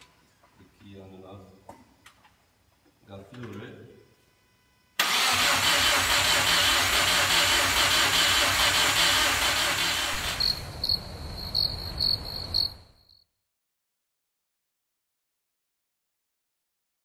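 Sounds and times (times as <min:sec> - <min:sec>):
engine cranking on starter: 0:05.0 - 0:10.6
cricket chirping sound effect: 0:10.2 - 0:13.3.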